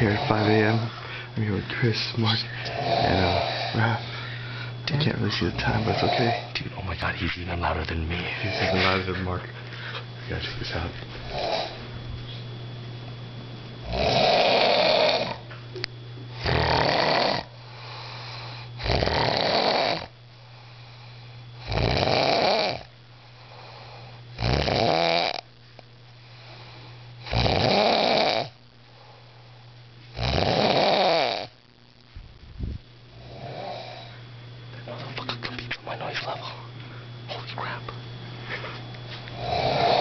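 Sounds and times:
man snoring loudly: 0:00.0 - 0:00.9, 0:02.6 - 0:04.1, 0:05.6 - 0:06.5, 0:08.4 - 0:08.9, 0:11.3 - 0:11.8, 0:13.8 - 0:15.4, 0:16.4 - 0:20.1, 0:21.6 - 0:22.9, 0:23.5 - 0:25.4, 0:27.2 - 0:28.6, 0:30.2 - 0:31.6, 0:33.1 - 0:34.1, 0:39.3 - 0:40.0.

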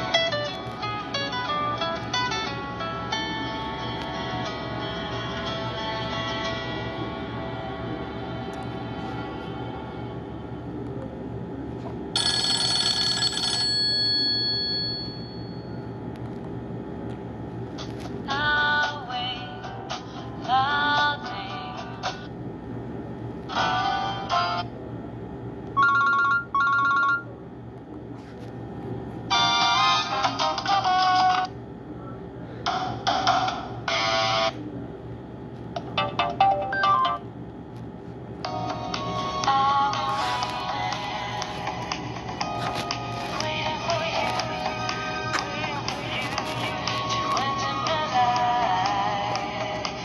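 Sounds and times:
bell-like phone ringtone: 0:12.2 - 0:15.9, 0:25.8 - 0:27.3, 0:36.1 - 0:37.2.

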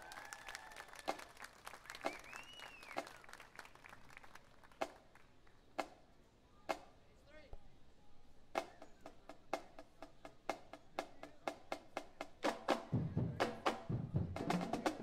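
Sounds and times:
audience applause: 0:00.0 - 0:04.8
rising and falling whistle: 0:02.0 - 0:03.2.

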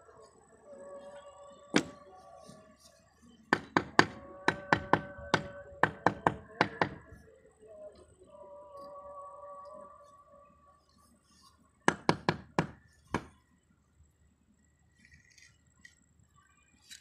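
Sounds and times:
tool handle knocking roof tile: 0:03.6 - 0:07.0, 0:11.9 - 0:13.3.

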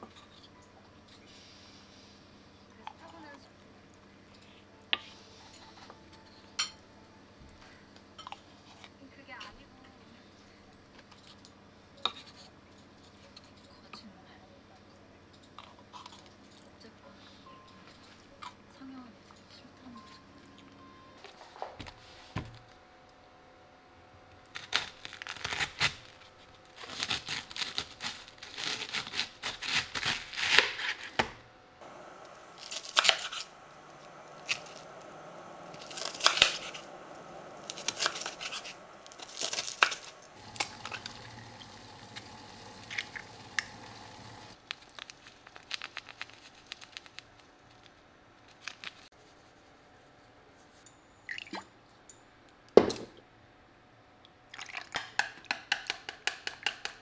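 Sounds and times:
knife cutting through cabbage: 0:24.6 - 0:31.2, 0:32.5 - 0:34.9, 0:35.8 - 0:36.9, 0:37.6 - 0:41.1.

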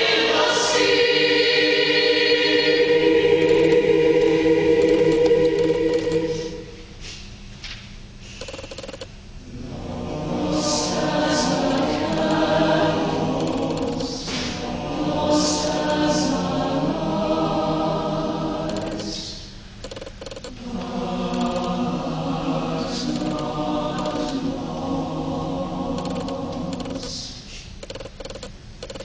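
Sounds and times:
mixed choir singing: 0:00.0 - 0:06.8, 0:09.4 - 0:19.5, 0:20.5 - 0:27.4.

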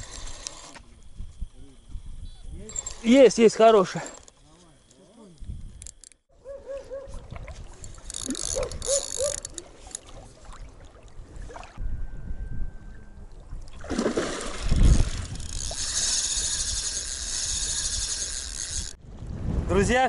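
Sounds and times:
fishing reel clicking and whirring: 0:00.0 - 0:01.5, 0:02.6 - 0:04.5, 0:05.6 - 0:06.2, 0:07.8 - 0:10.0, 0:14.8 - 0:19.0
wind noise: 0:00.0 - 0:03.4, 0:05.3 - 0:20.0
water: 0:06.6 - 0:11.8, 0:13.2 - 0:19.0.

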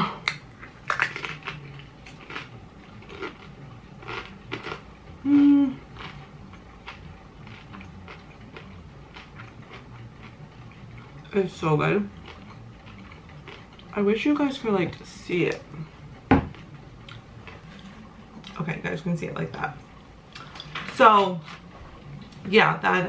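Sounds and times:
chewing and mouth noises: 0:00.2 - 0:04.9, 0:05.8 - 0:11.3, 0:12.0 - 0:14.0, 0:15.5 - 0:18.6
person humming mm: 0:05.2 - 0:05.9.

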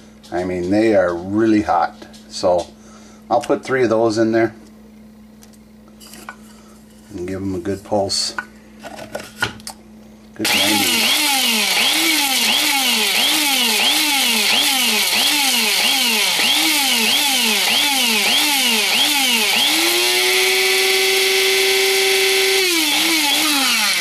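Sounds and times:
electric spice grinder motor: 0:10.4 - 0:24.0.

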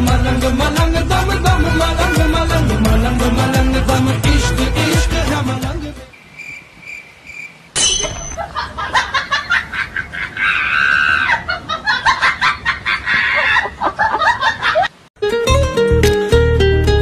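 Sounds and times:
loud laughter: 0:08.4 - 0:15.0.

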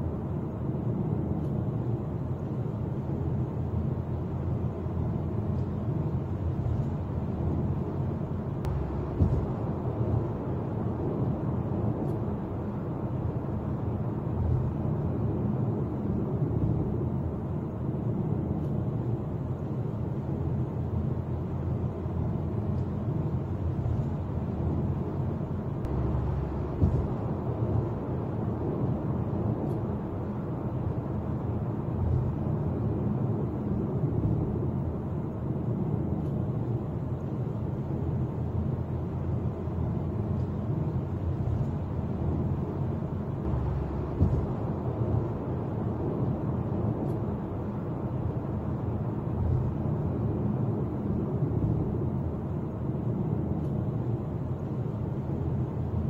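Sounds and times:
car road and engine noise: 0:00.0 - 0:56.0
brief thump: 0:09.1 - 0:09.6, 0:26.8 - 0:27.2, 0:44.2 - 0:44.7.

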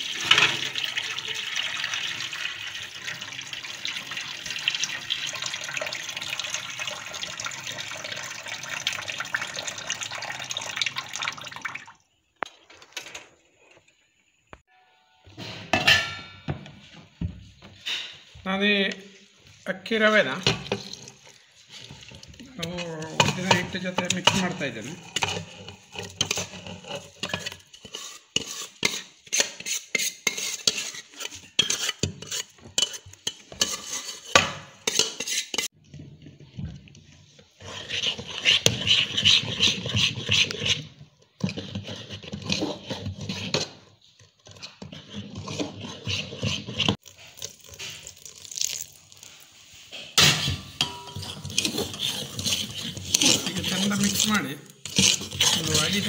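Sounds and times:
metal spoon stirring batter in steel vessel: 0:19.4 - 0:56.0.

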